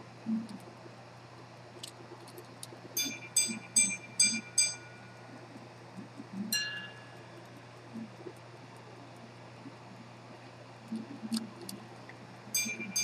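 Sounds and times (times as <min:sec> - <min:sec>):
pocket watch chiming on gongs: 0:03.0 - 0:05.0, 0:06.6 - 0:07.0, 0:12.6 - 0:13.0.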